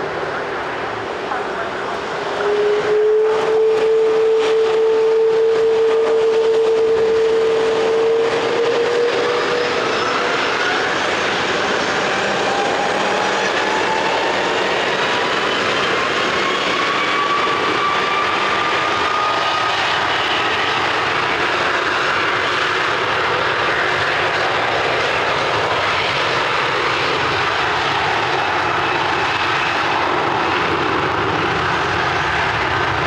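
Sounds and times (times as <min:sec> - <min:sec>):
jet engine whine: 0:00.0 - 0:33.0
jet engines roaring: 0:00.0 - 0:33.0.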